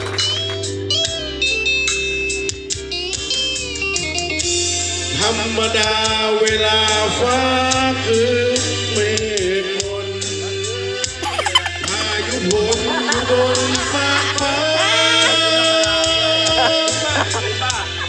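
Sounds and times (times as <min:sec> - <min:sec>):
guitar backing track: 0:00.0 - 0:08.5, 0:09.2 - 0:18.0
man singing karaoke: 0:05.1 - 0:17.9.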